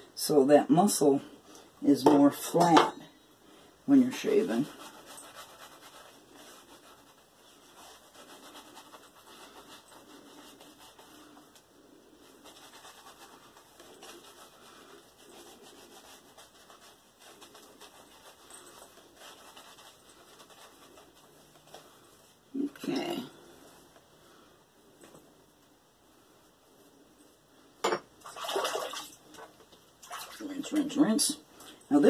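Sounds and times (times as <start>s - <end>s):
shaving brush wet scratching: 3.9s - 23.6s, 30.0s - 31.3s.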